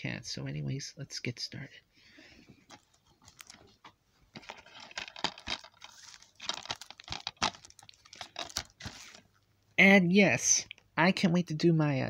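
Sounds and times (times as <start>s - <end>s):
plastic wrap crinkling: 2.6s - 9.4s.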